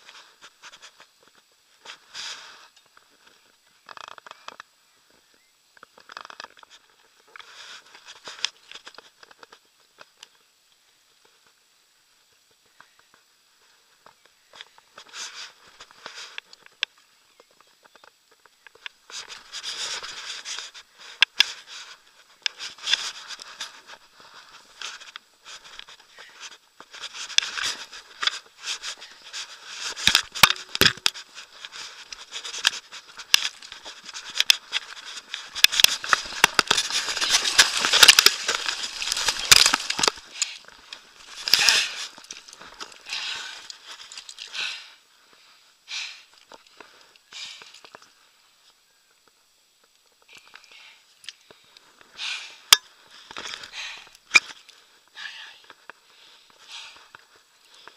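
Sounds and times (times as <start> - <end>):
fish handled on pebbles: 17.6 - 44.6
rustling through grass: 19.1 - 44.4.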